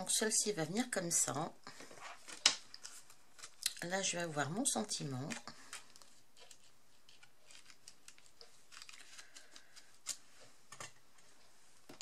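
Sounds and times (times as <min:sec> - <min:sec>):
cardstock rustling and tapping: 0:01.7 - 0:04.2.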